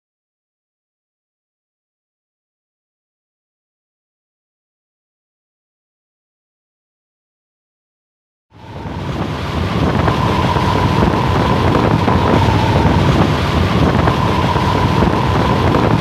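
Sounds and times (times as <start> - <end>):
thin steady whistle: 8.6 - 16.0
wind rushing over microphone: 8.6 - 16.0.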